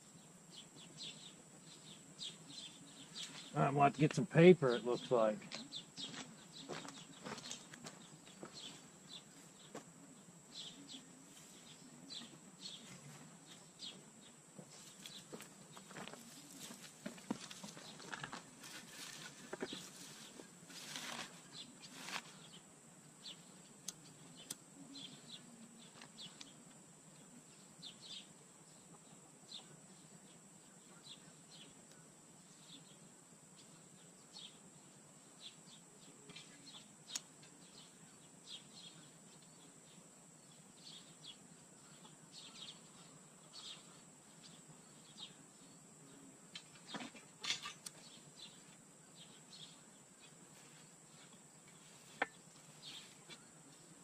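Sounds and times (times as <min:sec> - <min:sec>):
bird chirps: 0:00.0 - 0:09.8, 0:35.4 - 0:50.4.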